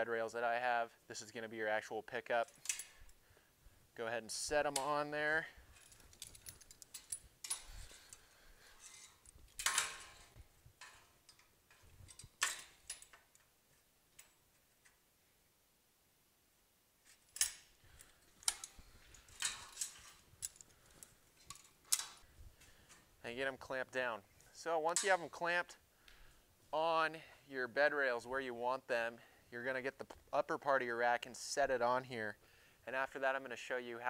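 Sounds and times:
metallic clicks and clanks: 2.4 - 3.1, 5.8 - 8.2, 8.8 - 13.5, 17.3 - 22.2, 24.9 - 25.4.

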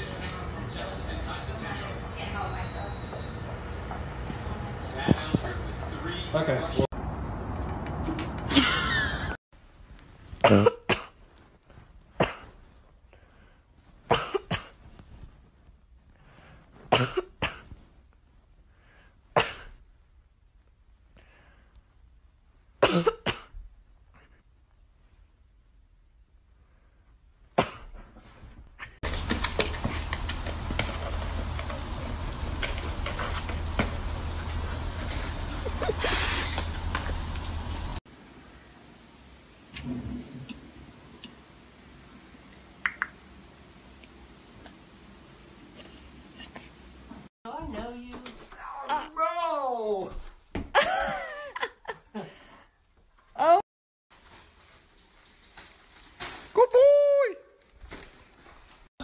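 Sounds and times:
person coughing: 10.4 - 11.2, 12.2 - 12.5, 14.1 - 14.8, 16.9 - 17.7, 19.4 - 19.7, 22.8 - 23.5, 27.6 - 27.9.

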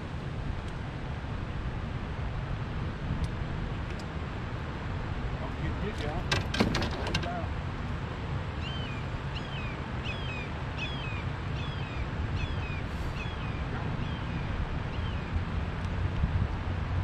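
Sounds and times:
bird calling: 8.6 - 15.3.

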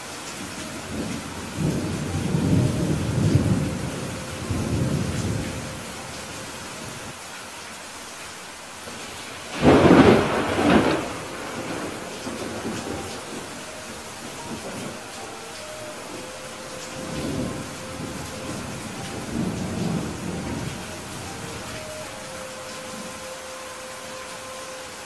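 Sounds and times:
rain hiss: 0.0 - 25.0
thunder rumbling: 0.4 - 7.1, 8.9 - 24.4
sharp thunderclap: 9.5 - 13.4.

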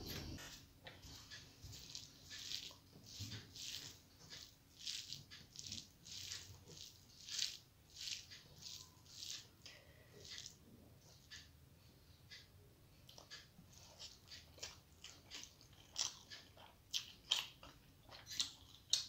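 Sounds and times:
fingers squishing rice: 0.2 - 10.6.

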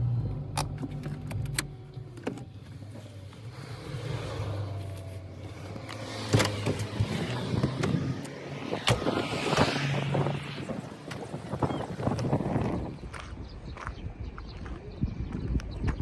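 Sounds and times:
car door opening and shutting: 4.9 - 12.3.

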